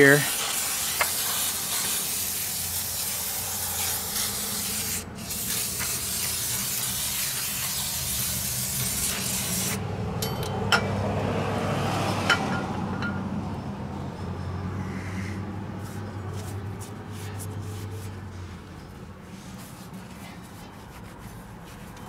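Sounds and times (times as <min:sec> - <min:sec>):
aerosol spray can hissing: 0:00.0 - 0:09.8.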